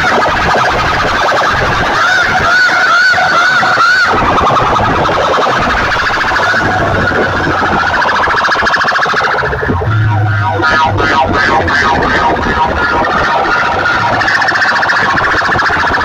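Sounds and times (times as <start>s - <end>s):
pulsing wailing siren tone: 0.0s - 16.0s
deep steady hum: 4.0s - 16.0s.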